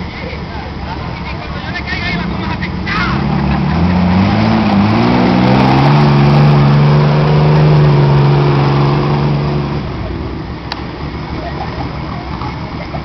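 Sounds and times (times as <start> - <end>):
car engine revving hard: 1.6 - 13.0.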